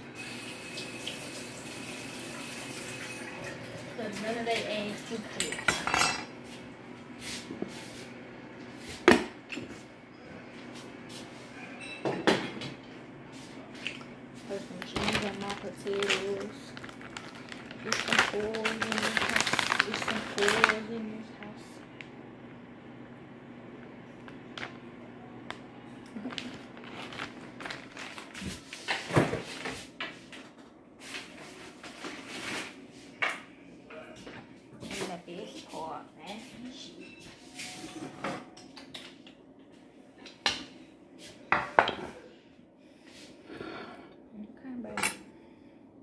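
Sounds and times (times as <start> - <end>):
kitchen clicks and knocks: 5.3 - 6.3
rustling: 26.2 - 29.6.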